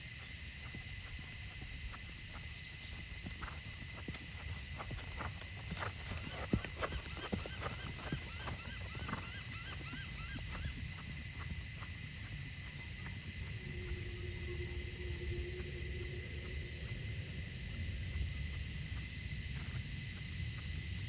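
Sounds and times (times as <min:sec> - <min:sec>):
horse hooves trotting on sand: 0:00.1 - 0:13.9
steady high whine: 0:13.2 - 0:18.3
low rumble: 0:13.6 - 0:19.0.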